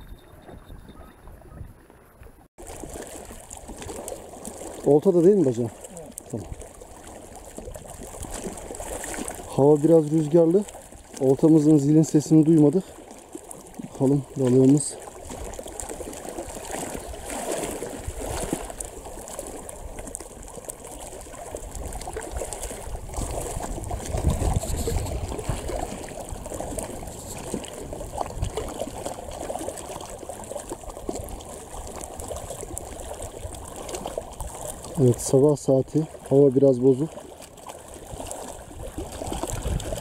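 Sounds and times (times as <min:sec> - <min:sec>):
waves lapping on rocks: 0:02.1 - 0:40.0
wind on microphone: 0:21.6 - 0:29.6, 0:38.1 - 0:40.0.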